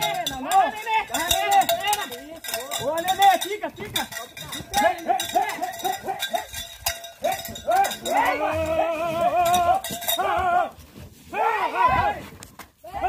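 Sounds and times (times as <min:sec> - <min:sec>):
bell clanking: 0:00.0 - 0:10.4.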